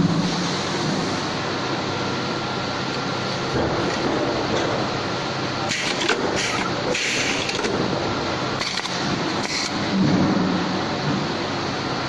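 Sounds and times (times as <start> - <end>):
rivet machine running: 5.6 - 9.9.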